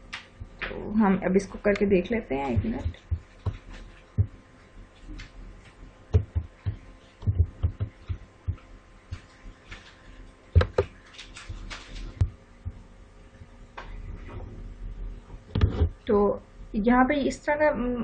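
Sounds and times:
faint steady hum: 0:00.0 - 0:18.0
computer keyboard keystrokes: 0:10.6 - 0:11.9.

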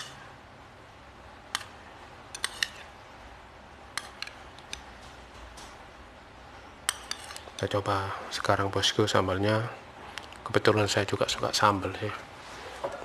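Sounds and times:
metal spoon clinking on glass dish: 0:06.9 - 0:07.7.

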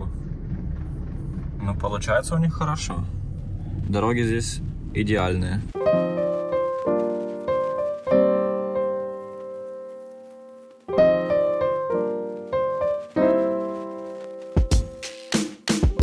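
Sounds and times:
piano chords: 0:04.2 - 0:16.0
drum hits: 0:14.6 - 0:16.0.

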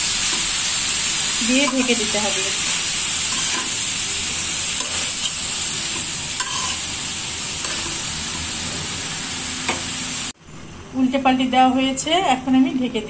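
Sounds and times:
vegetables sizzling in oil: 0:00.0 - 0:10.4
spatula scraping a wok: 0:00.1 - 0:10.0.

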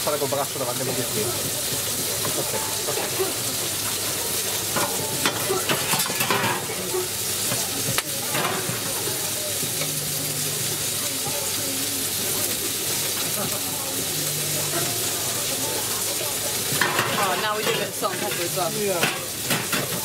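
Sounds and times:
chicken sizzling on griddle: 0:00.0 - 0:20.0
metal utensil scraping: 0:02.3 - 0:07.2.

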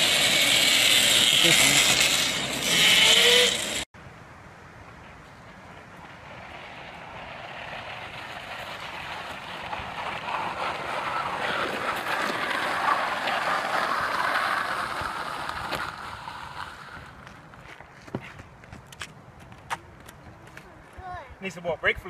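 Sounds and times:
electric motorcycle passing: 0:00.0 - 0:03.9, 0:05.8 - 0:17.4.

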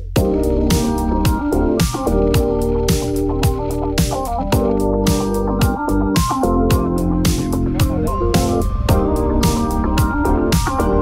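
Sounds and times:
snare and hi-hat hits: 0:00.0 - 0:08.6
keyboard chords: 0:00.0 - 0:11.0.

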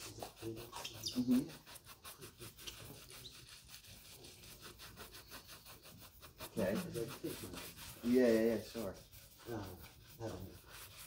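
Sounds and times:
shoe brush buffing leather: 0:00.0 - 0:11.0
person speaking: 0:06.4 - 0:10.7.

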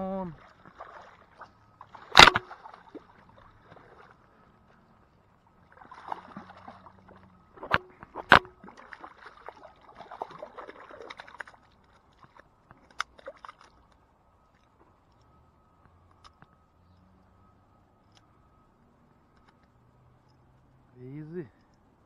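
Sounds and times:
water sloshing among rocks: 0:00.0 - 0:14.9
sharp slaps or knocks: 0:02.2 - 0:02.5.

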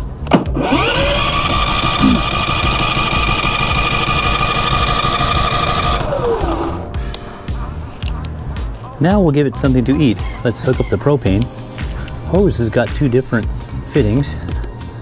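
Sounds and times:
generator starter click: 0:00.2 - 0:06.8
electric starter cranking engine: 0:00.6 - 0:06.9.

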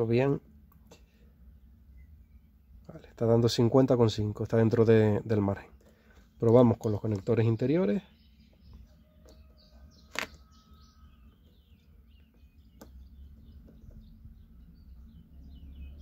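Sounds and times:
small birds chirping: 0:00.0 - 0:16.0
low steady rumble: 0:10.7 - 0:16.0.

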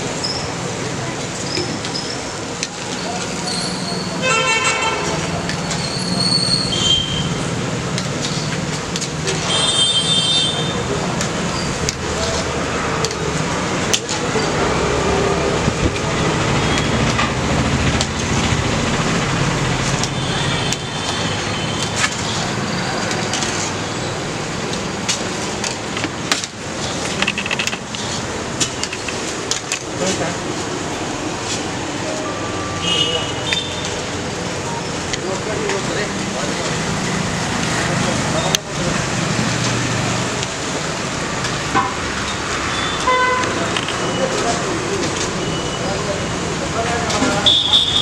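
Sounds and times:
street traffic: 0:00.0 - 0:48.0
vehicle horn toots: 0:04.2 - 0:05.3, 0:09.4 - 0:10.8, 0:42.8 - 0:43.6, 0:47.4 - 0:48.0.

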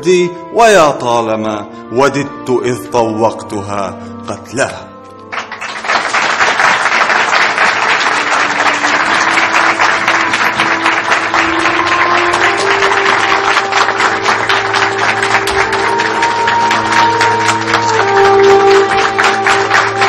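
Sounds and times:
background music held notes: 0:00.0 - 0:20.0
audience applauding: 0:05.3 - 0:20.0.

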